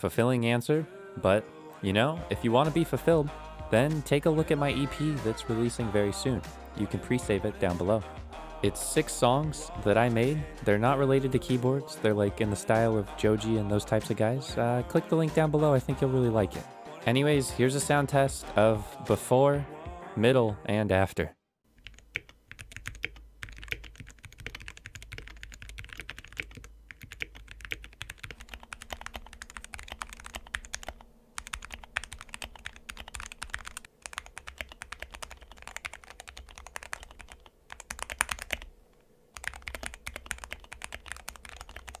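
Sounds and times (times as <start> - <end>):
fast typing on mechanical keyboard: 21.8 - 38.7, 39.4 - 42.0.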